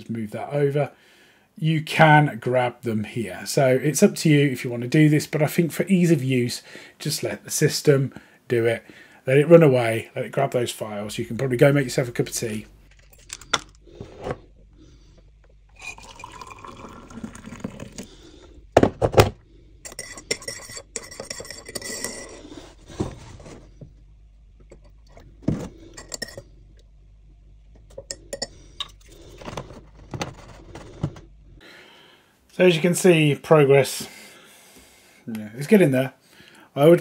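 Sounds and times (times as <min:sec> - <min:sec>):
liquid pouring into mug: 0:15.5 - 0:18.5
teaspoon clinking in mug: 0:19.8 - 0:22.4.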